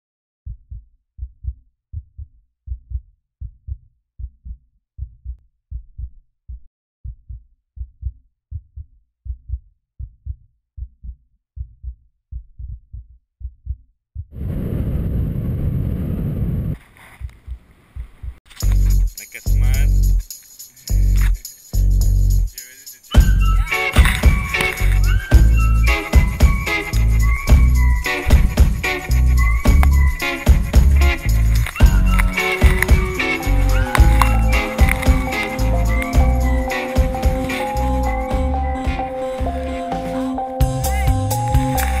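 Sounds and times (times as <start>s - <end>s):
heartbeat thumps: 0.5s - 14.6s, 23.2s - 39.6s.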